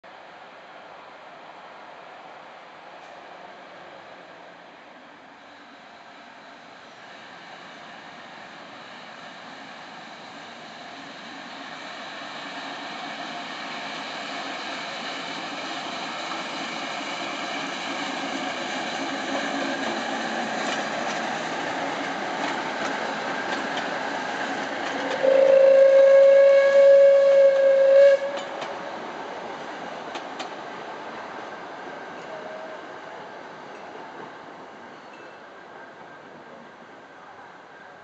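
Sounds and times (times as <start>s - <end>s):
diesel locomotive passing: 0.4s - 38.0s
train horn blast: 25.2s - 28.5s.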